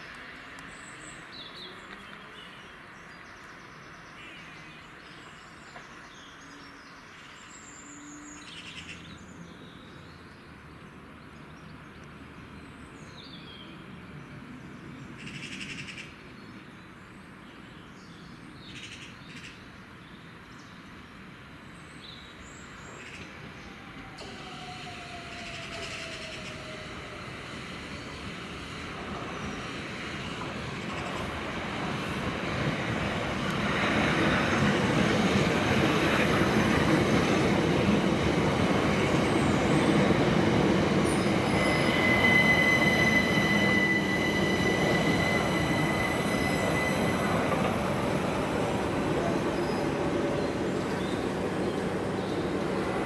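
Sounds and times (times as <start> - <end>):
train rumble passing: 23.0 - 53.0
high wheel squeal: 40.8 - 48.7.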